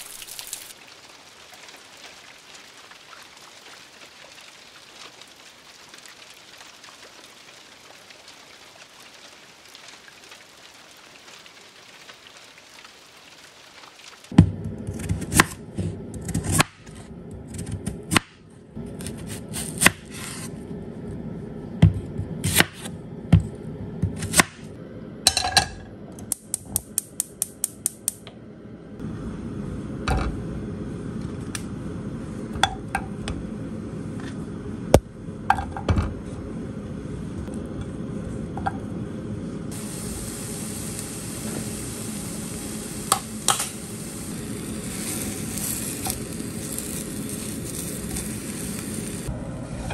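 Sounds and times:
gas burner hissing: 39.2s - 49.3s.

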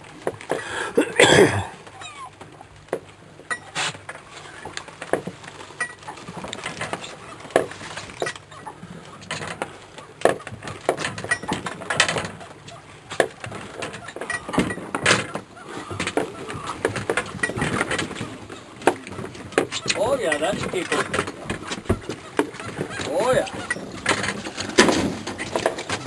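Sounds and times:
irregular clicks and knocks: 9.1s - 12.4s, 13.1s - 26.0s.

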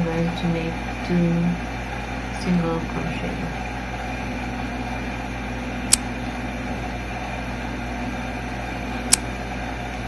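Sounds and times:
room noise hum and hiss: 0.0s - 10.0s
sharp click: 9.1s - 9.3s.

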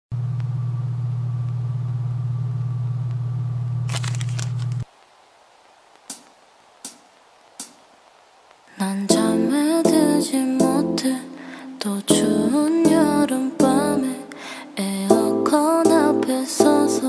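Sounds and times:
steady low hum: 0.1s - 3.9s
crackling clicks: 3.9s - 5.1s, 5.9s - 8.7s
faint hiss: 4.8s - 17.0s.

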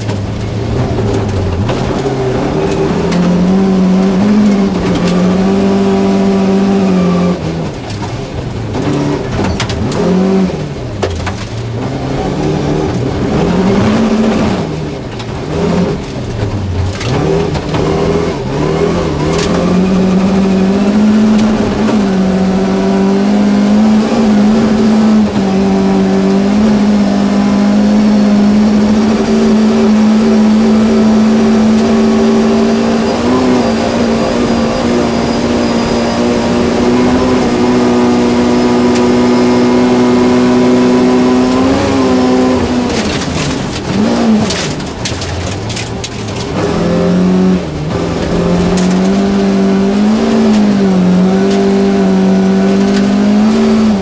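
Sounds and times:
rally car engine at full throttle: 0.0s - 54.0s
sharp clatter: 42.7s - 47.0s.

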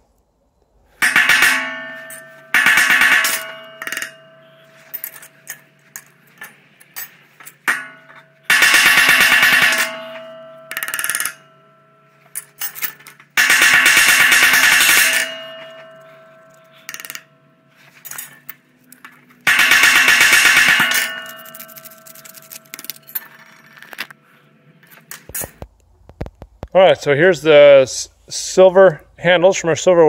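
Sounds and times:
hammer clanging on silverware: 1.0s - 18.5s, 19.5s - 23.2s.

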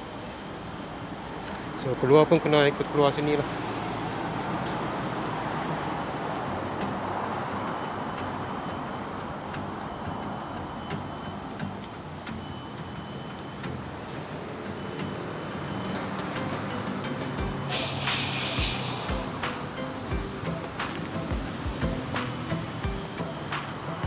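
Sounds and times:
city road traffic hum: 0.0s - 24.0s.

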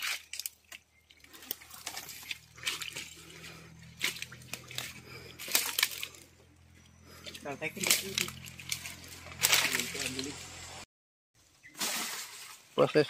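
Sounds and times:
dry leaves rustling and crackling underfoot: 1.3s - 6.3s, 7.4s - 10.8s, 11.6s - 13.0s.

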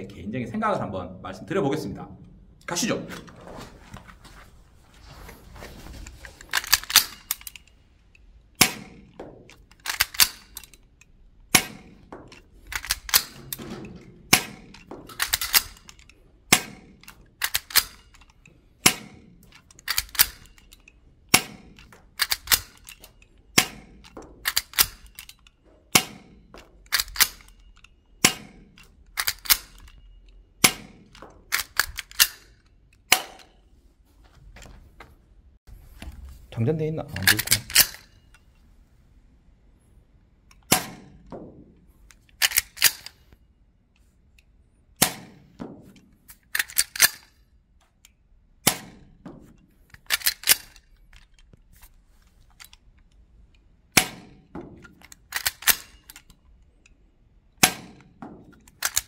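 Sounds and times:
airsoft pistol shots: 8.6s - 10.5s, 11.5s - 15.9s, 16.5s - 17.1s, 18.8s - 20.4s, 21.3s - 22.8s, 23.5s - 25.0s, 25.9s - 27.4s, 28.2s - 28.8s, 30.6s - 32.3s, 45.0s - 45.8s, 48.6s - 49.4s, 53.9s - 54.8s, 57.6s - 58.4s.

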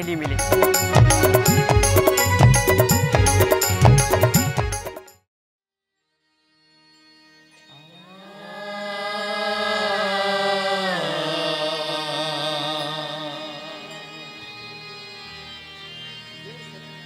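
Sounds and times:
person singing with vibrato: 7.6s - 15.3s.

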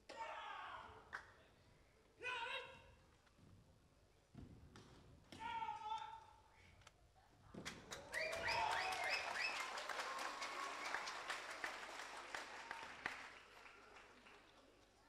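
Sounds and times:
audience applause: 7.8s - 14.8s
audience cheering: 7.9s - 14.0s.

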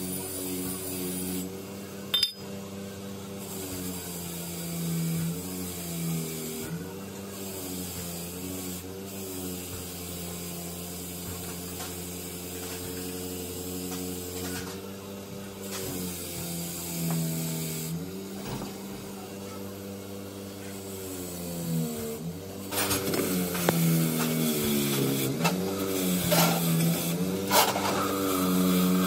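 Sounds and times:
bench grinder motor humming: 19.3s - 29.0s.

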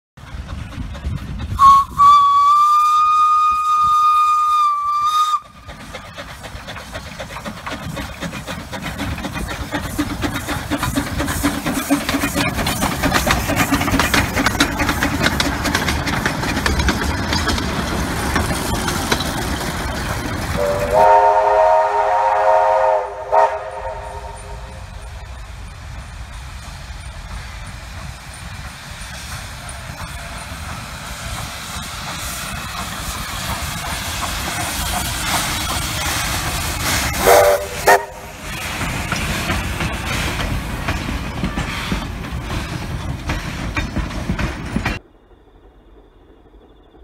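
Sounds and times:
steam locomotive exhaust beats: 0.2s - 47.0s
hissing steam: 0.3s - 45.0s
shrill steam whistle: 1.6s - 5.6s, 20.6s - 24.9s, 37.1s - 38.4s.

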